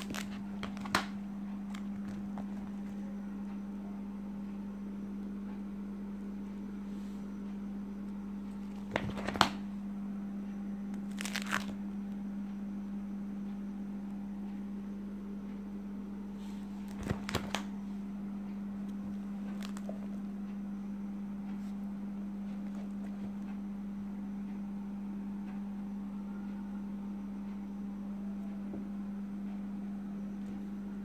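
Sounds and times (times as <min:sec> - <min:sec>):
plastic pages crinkling: 0:00.0 - 0:03.0, 0:08.5 - 0:09.6, 0:11.0 - 0:11.8, 0:16.8 - 0:17.7, 0:19.4 - 0:20.1
steady low hum: 0:00.0 - 0:31.0.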